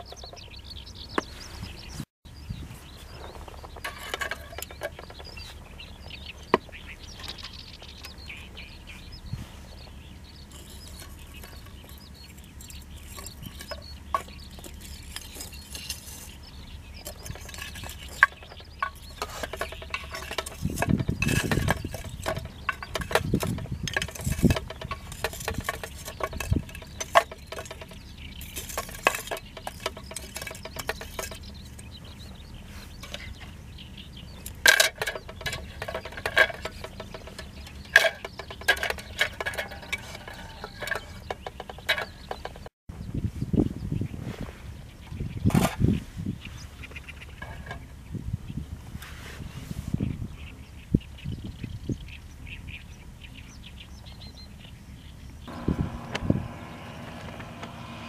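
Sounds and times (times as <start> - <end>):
metal tongs clinking on charcoal: 17.0 - 31.9, 34.4 - 42.4.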